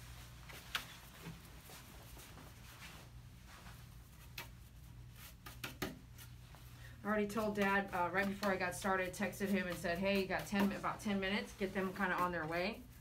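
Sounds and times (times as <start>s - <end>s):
brush scratching through fur: 7.3s - 13.0s.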